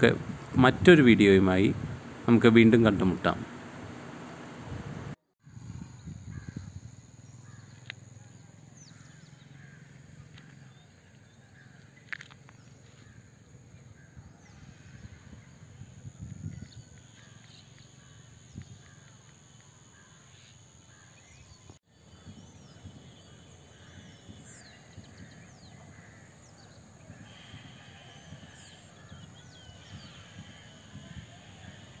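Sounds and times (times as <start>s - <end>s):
birds chirping and calling: 6.3s - 13.2s, 13.8s - 32.0s.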